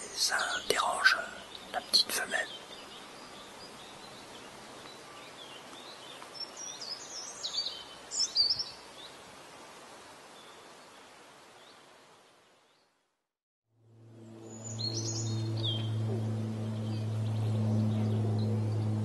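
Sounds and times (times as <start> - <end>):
steady background hiss: 0.0 - 12.9.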